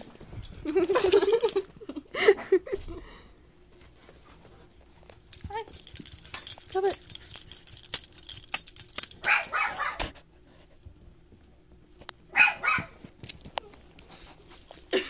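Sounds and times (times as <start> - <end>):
high jingling: 0.0 - 1.7, 5.3 - 10.1, 14.3 - 15.0
dogs barking: 9.2 - 10.1, 12.3 - 13.0.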